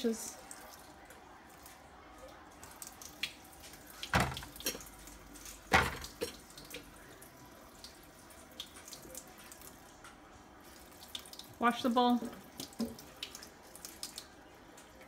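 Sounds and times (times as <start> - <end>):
faucet running into sink: 3.7 - 5.0, 5.6 - 7.0
utensils clanking against sink: 4.1 - 4.8, 5.7 - 6.4.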